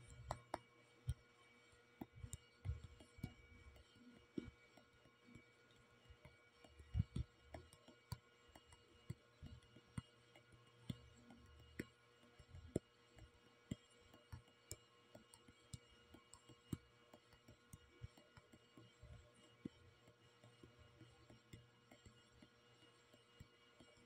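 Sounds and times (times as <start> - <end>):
faint steady hum: 0.0 - 24.0
fingertip tapping touchscreen: 0.2 - 0.6.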